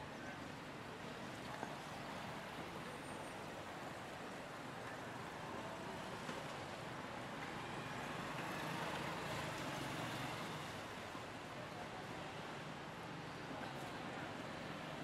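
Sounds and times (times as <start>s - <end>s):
city traffic noise: 0.0s - 15.0s.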